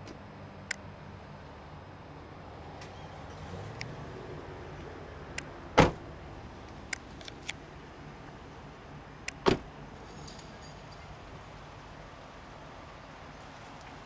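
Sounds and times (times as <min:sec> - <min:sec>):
car door slamming: 0:05.7 - 0:06.1, 0:09.4 - 0:09.7.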